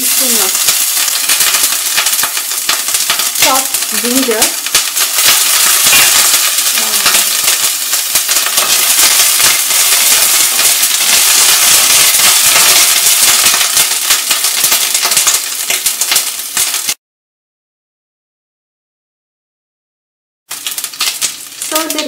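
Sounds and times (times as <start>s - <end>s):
spices sizzling in hot oil: 0.0s - 17.0s, 20.5s - 22.0s.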